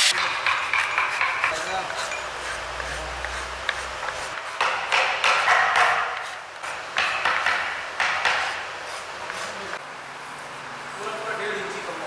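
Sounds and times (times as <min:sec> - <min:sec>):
hand file rasping on wood: 0:00.2 - 0:06.4.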